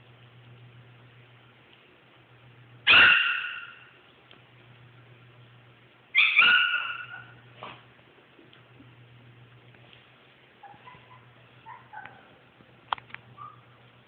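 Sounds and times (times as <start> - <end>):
small dog barking: 2.8 - 3.9, 6.2 - 7.8, 10.6 - 12.3.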